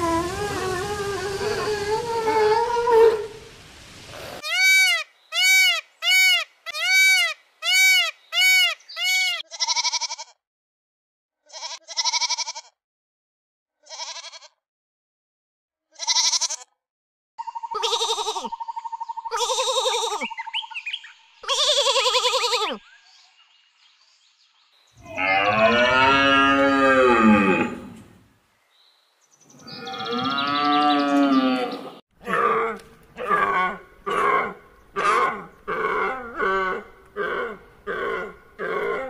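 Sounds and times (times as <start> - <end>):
peafowl calls: 4.5 - 9.4
sheep bleating: 9.1 - 10.4, 11.5 - 12.8, 13.9 - 14.6, 16.0 - 16.8.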